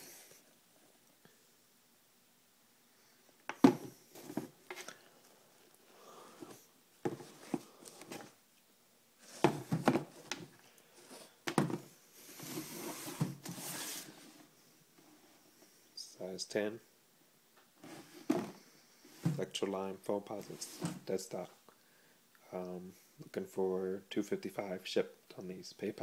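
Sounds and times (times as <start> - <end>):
rustling: 3.0 - 8.4
handling knocks and scrapes: 3.5 - 5.0, 6.4 - 8.4, 9.2 - 14.5, 17.8 - 19.5, 20.4 - 21.1.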